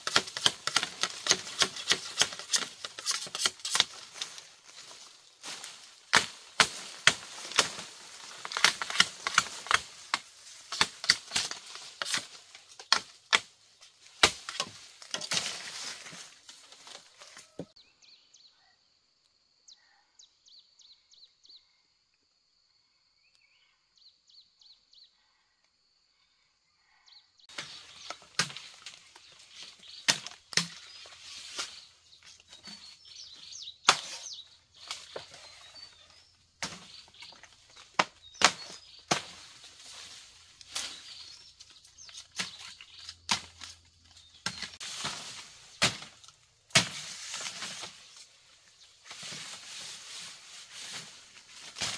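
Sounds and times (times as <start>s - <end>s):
bamboo stalks crackling and snapping: 0.0s - 17.7s, 27.5s - 51.9s
rustle of leaves: 0.0s - 17.8s, 27.5s - 51.9s.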